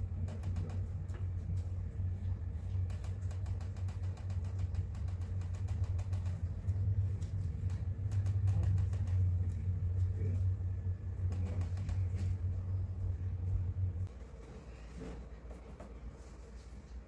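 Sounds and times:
brush tapping paint: 0.1 - 10.2.

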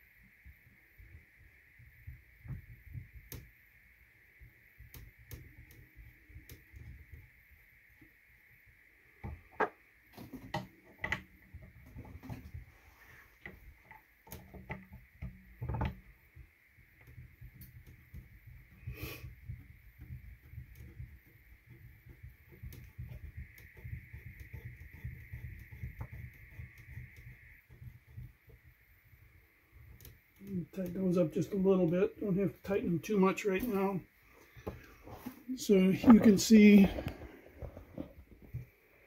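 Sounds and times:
plastic parts clicking and knocking: 9.2 - 12.7, 13.4 - 28.8.

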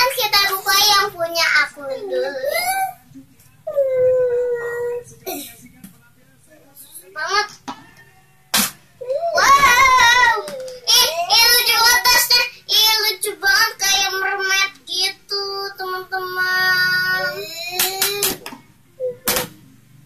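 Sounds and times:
girl singing: 0.0 - 2.8, 9.0 - 18.3.

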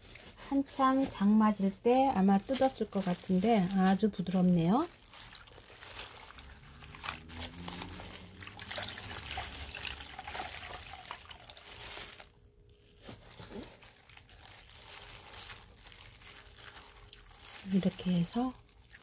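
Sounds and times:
plastic gloves crinkling: 0.0 - 19.0
water dribbling into bowl: 8.4 - 11.6.

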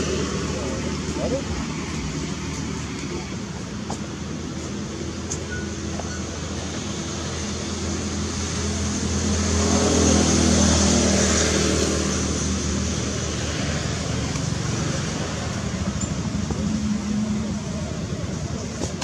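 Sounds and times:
vehicle engine passing by: 6.8 - 18.8.

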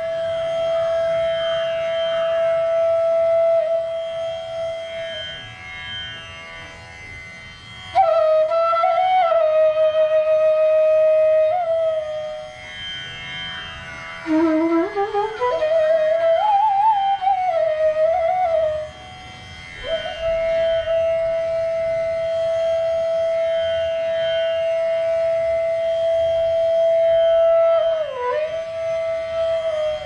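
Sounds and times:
bamboo flute playing: 0.0 - 6.0, 7.8 - 13.0, 14.2 - 30.0.

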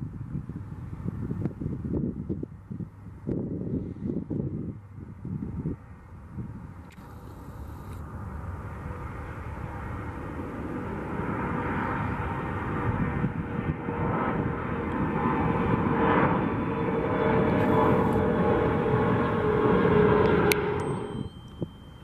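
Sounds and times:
jet engine whine: 0.0 - 22.0
jet rushing noise: 7.0 - 21.4.

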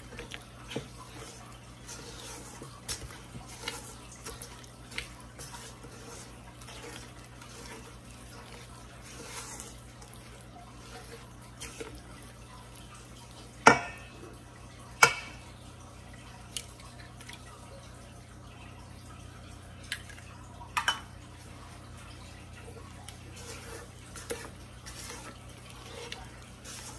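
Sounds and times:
spatula stirring thick batter: 0.0 - 14.4, 22.4 - 26.9.

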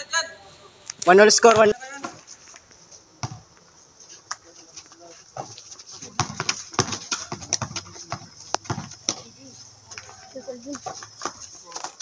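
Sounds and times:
footsteps and sneaker scuffs: 1.6 - 12.0
basketball bouncing on concrete: 3.2 - 3.4, 5.4 - 9.3, 10.0 - 12.0.

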